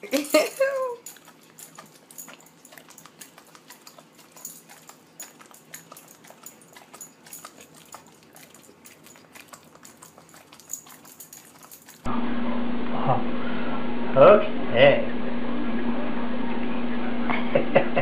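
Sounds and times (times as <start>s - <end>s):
dog smacking lips: 0.0s - 12.1s.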